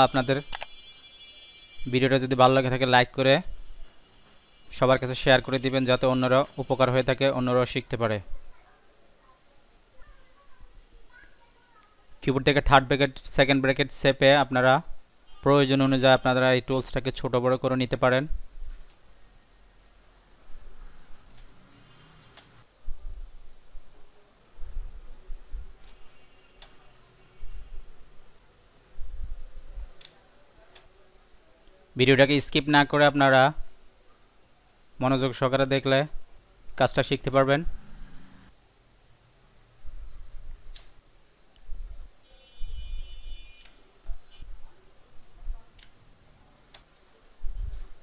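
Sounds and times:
computer mouse clicking: 0.5s - 1.6s, 8.2s - 9.5s, 18.4s - 27.6s, 28.2s - 31.4s, 39.0s - 42.3s, 43.2s - 43.9s, 45.0s - 48.0s.

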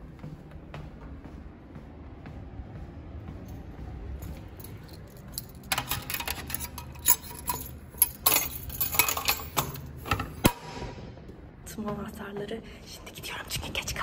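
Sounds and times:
metal keys jingling: 4.2s - 10.4s.

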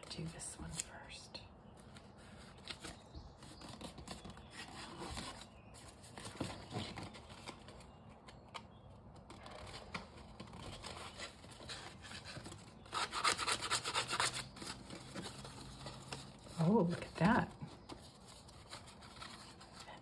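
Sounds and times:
paper rustling: 9.2s - 20.0s.

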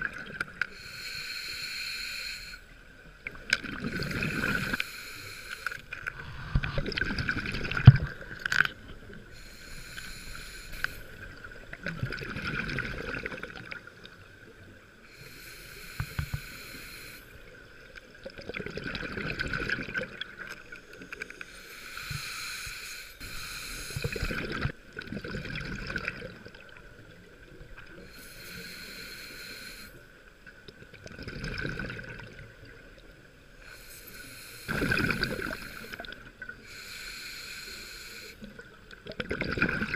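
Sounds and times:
regulator hissing inhale: 0.6s - 2.8s, 3.8s - 6.8s, 9.3s - 11.5s, 15.0s - 17.6s, 20.7s - 24.4s, 28.0s - 30.2s, 33.6s - 38.6s
bubbling exhale: 3.6s - 8.6s, 21.6s - 26.4s, 33.7s - 38.5s.

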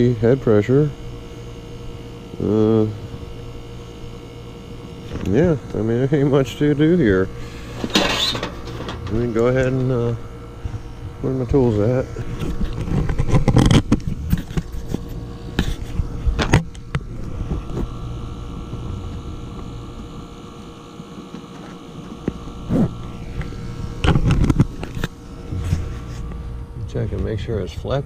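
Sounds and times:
heat pump humming: 0.0s - 28.0s
tools being handled: 7.8s - 9.3s.

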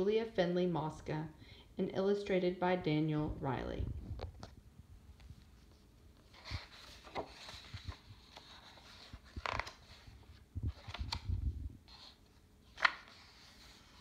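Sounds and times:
book pages rustling: 5.2s - 14.0s.

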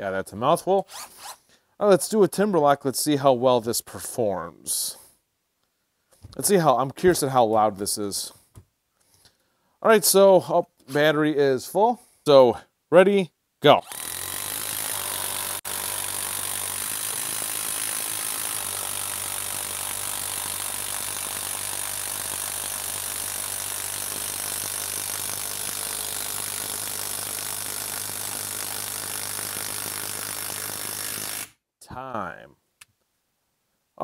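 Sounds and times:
impact driver hammering: 13.9s - 31.5s.

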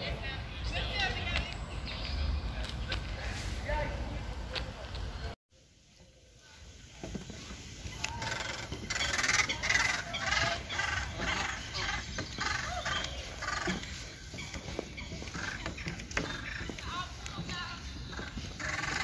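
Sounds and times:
geese honking: 7.8s - 19.0s.

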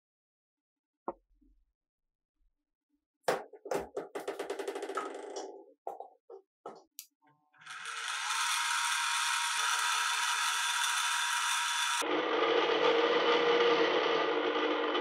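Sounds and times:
drill press boring into steel: 7.6s - 15.0s.

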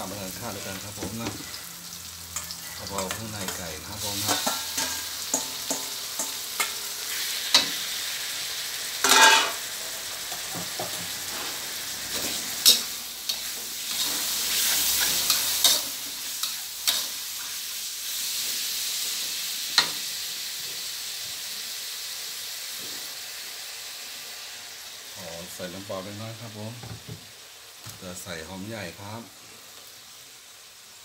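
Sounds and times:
food sizzling in oil: 0.0s - 31.0s
spatula scraping a wok: 9.0s - 9.7s, 11.1s - 20.9s.

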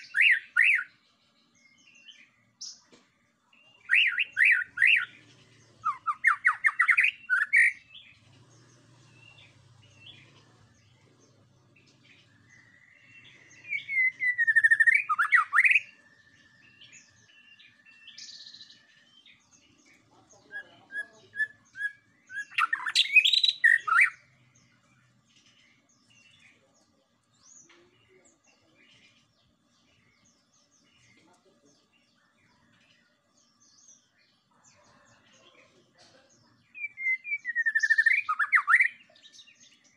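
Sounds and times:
songbird singing phrases: 0.0s - 39.9s.

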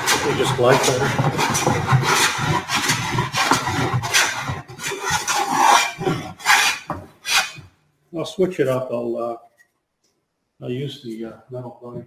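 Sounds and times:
hand plane shaving wood: 0.0s - 7.6s.

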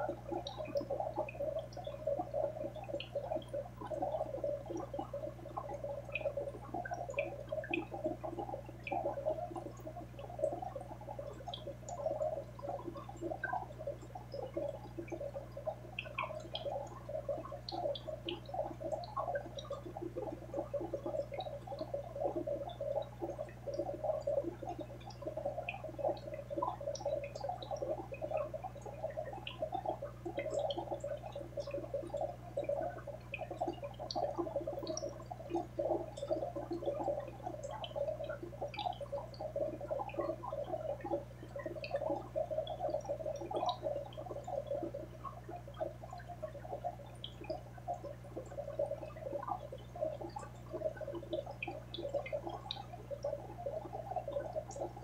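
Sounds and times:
aquarium water bubbling: 0.0s - 55.0s.

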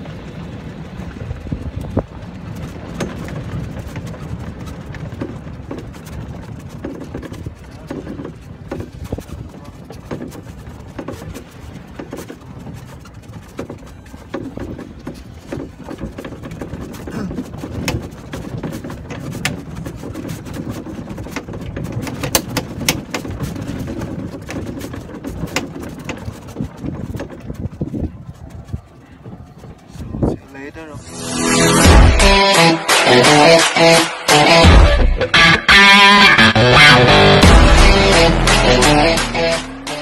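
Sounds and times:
clicks and rattles of jolting cart: 0.0s - 30.9s
golf cart rumbling over rough track: 0.0s - 40.0s.

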